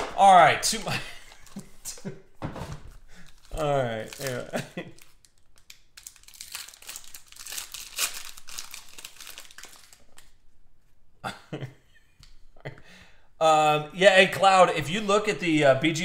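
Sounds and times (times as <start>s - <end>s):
cards rustling: 0.7s - 2.0s, 3.2s - 10.4s
foil wrapper crinkling and tearing: 3.2s - 10.4s.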